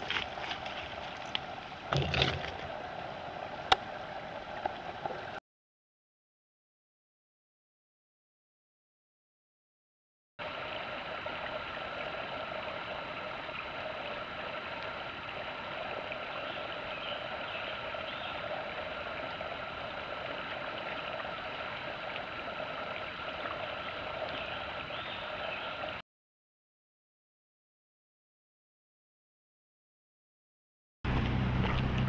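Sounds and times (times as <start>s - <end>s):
stream flowing over rocks: 0.0s - 5.4s, 10.4s - 26.0s.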